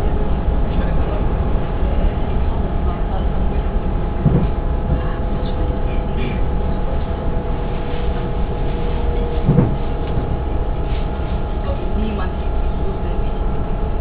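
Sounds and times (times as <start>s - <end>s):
train rumbling on track: 0.0s - 14.0s
short low knocks: 4.2s - 5.1s, 9.2s - 10.4s.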